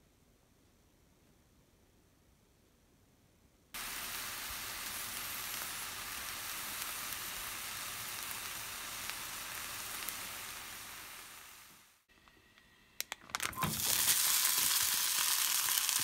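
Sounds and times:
potatoes sizzling in a pot: 3.8s - 12.1s, 13.5s - 16.0s.

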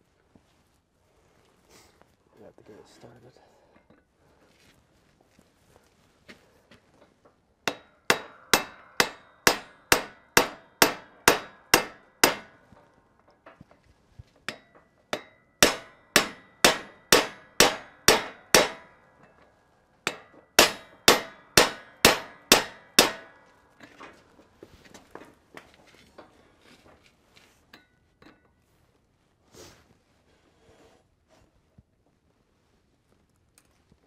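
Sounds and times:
hammer striking steel: 7.7s - 12.9s, 14.5s - 19.4s, 20.1s - 24.0s.

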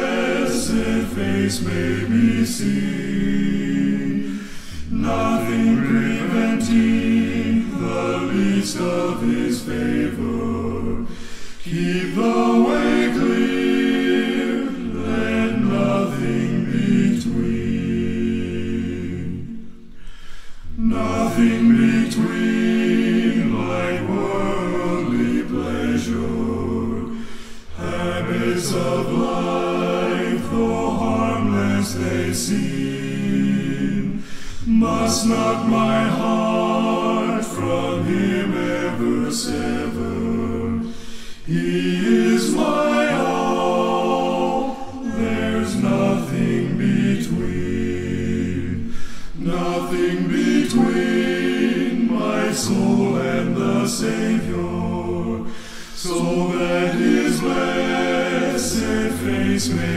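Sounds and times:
male vocal group singing hymn: 0.0s - 59.9s
singers breathing: 4.1s - 5.0s, 11.0s - 11.8s, 19.6s - 20.8s, 27.1s - 27.8s, 34.1s - 34.8s, 40.8s - 41.6s, 48.7s - 49.4s, 55.4s - 56.1s.

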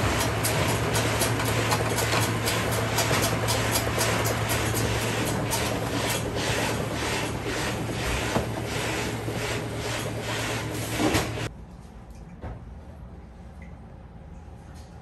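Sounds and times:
machine rhythmic mechanical clatter: 0.0s - 11.5s
motor hum: 0.0s - 11.5s.

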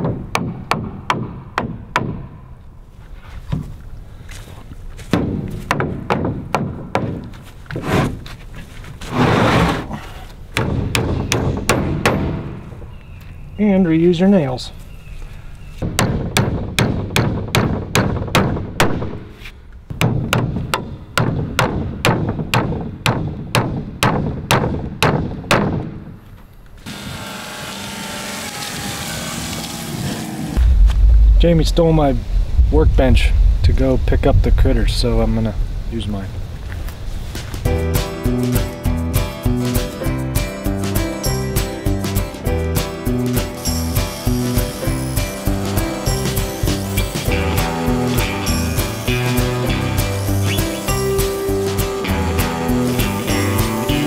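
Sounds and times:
hammer striking nail into wood: 0.0s - 2.4s, 5.1s - 7.2s, 10.6s - 12.6s, 15.8s - 19.2s, 19.9s - 26.0s
outdoor background noise: 0.0s - 39.9s
hammer knocking on wood: 5.1s - 7.2s, 10.6s - 12.5s.

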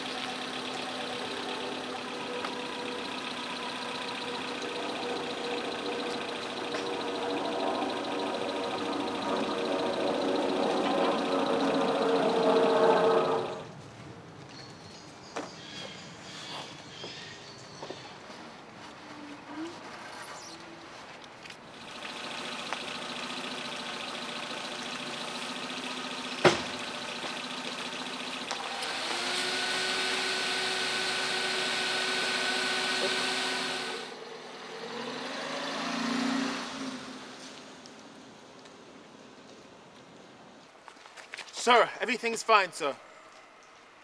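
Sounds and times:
car engine running: 0.0s - 13.7s, 21.6s - 34.5s.

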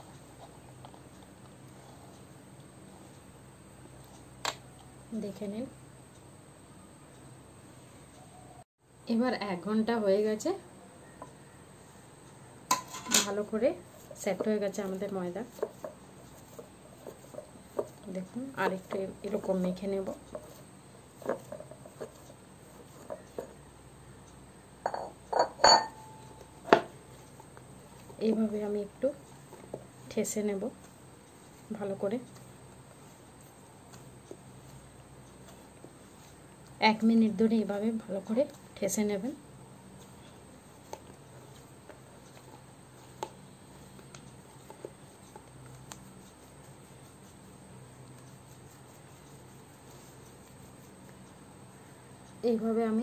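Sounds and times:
low steady hum: 0.0s - 53.0s
dough kneaded on wooden board: 13.4s - 23.8s, 25.0s - 53.0s
glass bowl clinking and knocking: 24.8s - 26.9s.

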